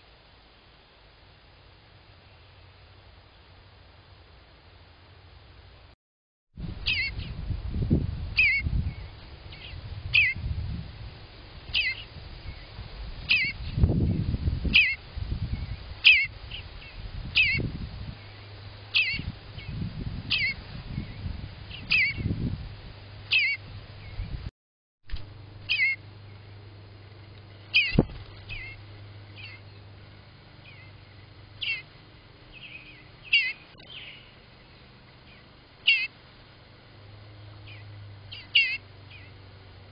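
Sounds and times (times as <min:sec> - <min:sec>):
bird giving short high calls: 0:06.9 - 0:07.3, 0:11.7 - 0:12.1, 0:14.7 - 0:15.0, 0:18.9 - 0:19.2, 0:23.3 - 0:23.6, 0:25.7 - 0:26.0, 0:27.7 - 0:28.8, 0:31.6 - 0:31.9, 0:32.6 - 0:34.3, 0:35.8 - 0:36.2, 0:37.7 - 0:39.3.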